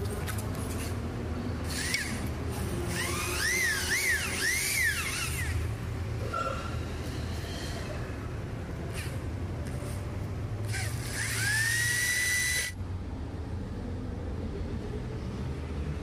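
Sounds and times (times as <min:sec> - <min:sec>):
high squeal of tool cutting metal: 0:01.7 - 0:05.7.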